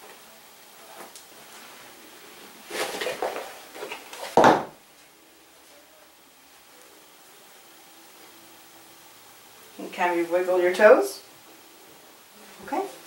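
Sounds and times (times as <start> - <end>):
shoe thumping on floor: 4.3 - 4.8.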